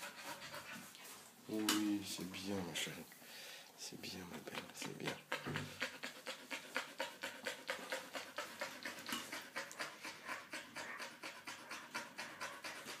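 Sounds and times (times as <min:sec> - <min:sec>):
dog panting rapidly: 0:00.0 - 0:01.1, 0:04.6 - 0:13.0.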